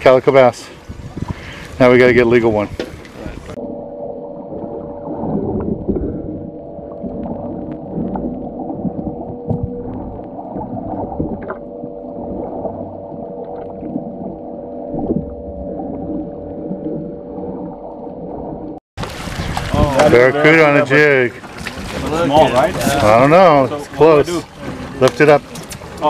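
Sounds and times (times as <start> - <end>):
low murky underwater rumble: 2.9 - 20.2
steady hum: 3.5 - 18.8.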